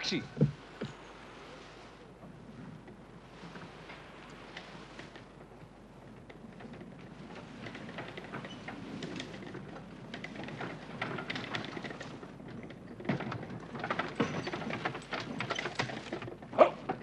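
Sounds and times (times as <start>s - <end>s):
carriage wheels rolling on dirt: 4.6s - 17.0s
horse hoofbeats: 6.8s - 17.0s.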